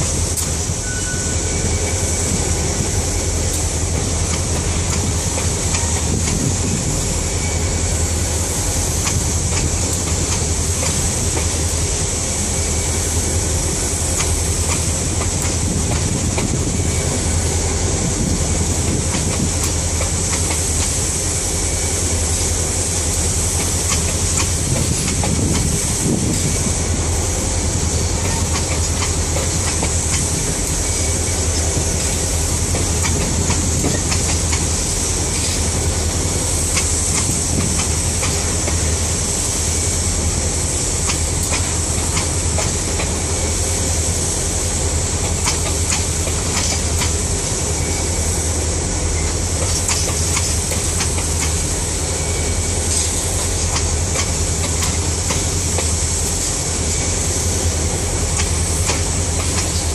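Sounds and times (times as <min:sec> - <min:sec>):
steady high hiss: 0:00.0 - 0:59.9
steel wheels rumbling on rail: 0:00.0 - 0:59.9
wheel clicks on rail: 0:00.3 - 0:00.7, 0:03.5 - 0:07.1, 0:08.9 - 0:12.0, 0:14.1 - 0:17.1, 0:17.7 - 0:21.1, 0:22.9 - 0:26.8, 0:28.1 - 0:39.1, 0:41.0 - 0:43.3, 0:45.2 - 0:47.6, 0:49.2 - 0:51.8, 0:52.8 - 0:57.1, 0:57.8 - 0:59.9.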